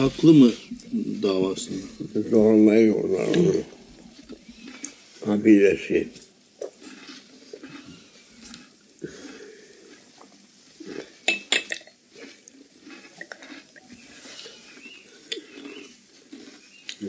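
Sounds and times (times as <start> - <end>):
low room murmur: 0.0 - 17.0
glass clinking: 11.3 - 11.9.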